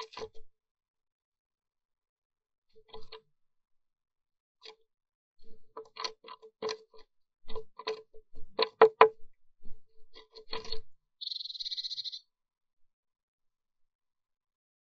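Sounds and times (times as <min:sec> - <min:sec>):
rapid high bird trill: 0:11.2 - 0:12.2.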